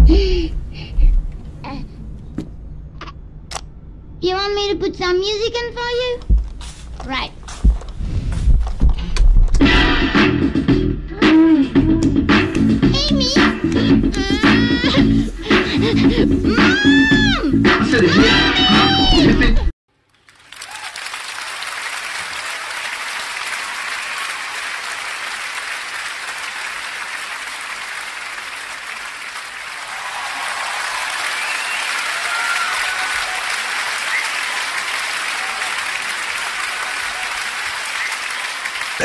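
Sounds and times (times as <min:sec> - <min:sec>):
crowd applause: 0:20.0 - 0:39.0.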